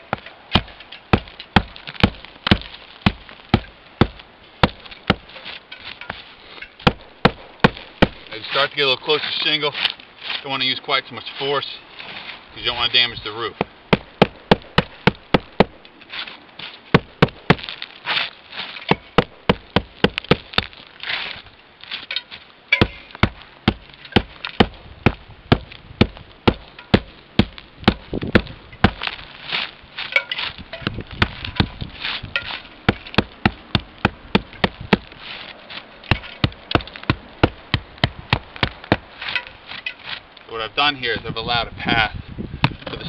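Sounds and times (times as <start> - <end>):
ice cracking and crunching: 16.0 - 40.3
hammer chipping ice: 22.8 - 29.1, 36.1 - 39.9.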